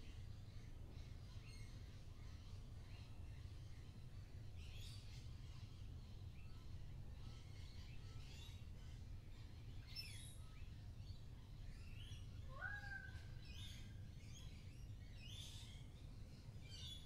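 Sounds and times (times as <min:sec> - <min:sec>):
small birds chirping: 0:00.1 - 0:17.0.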